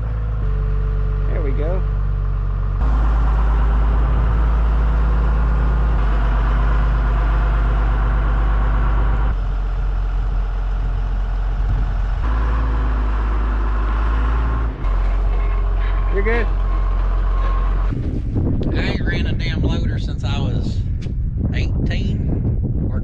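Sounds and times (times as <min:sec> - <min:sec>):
loader engine running: 0:00.0 - 0:20.6.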